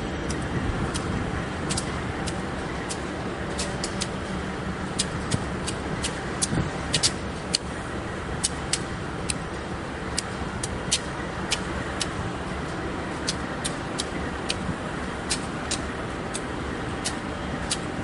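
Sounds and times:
locomotive engines idling: 0.0s - 18.0s
sharp clicks: 1.7s - 4.2s, 4.9s - 7.7s, 8.4s - 9.4s, 10.1s - 12.2s, 13.2s - 14.6s, 15.2s - 17.9s.

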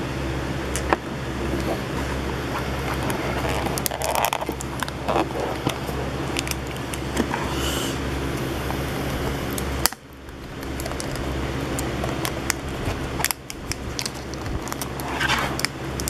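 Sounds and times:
steady low hum: 0.0s - 16.0s
cardboard clicks and scrapes: 1.5s - 7.6s, 14.0s - 16.0s.

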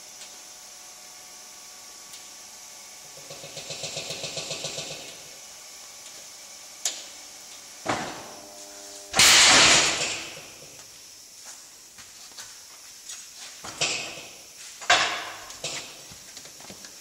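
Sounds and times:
conveyor machinery rattling: 3.2s - 5.1s
loud noisy burst: 9.1s - 10.4s.

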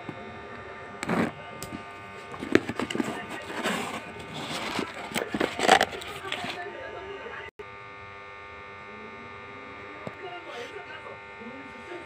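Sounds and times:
cardboard crackling and rustling: 2.2s - 6.7s.

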